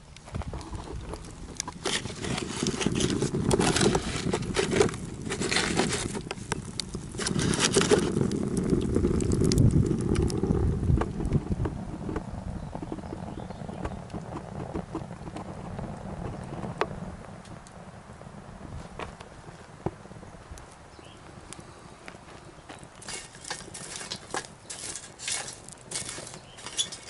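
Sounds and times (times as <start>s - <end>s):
wood fire crackling: 0.0s - 27.0s
scraping and clicking: 0.5s - 12.2s, 23.0s - 27.0s.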